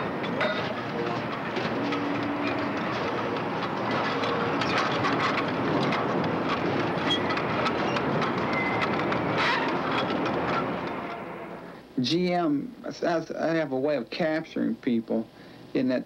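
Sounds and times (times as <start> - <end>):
metal clanks: 0.0 - 11.4
conveyor and machinery din: 0.0 - 15.2.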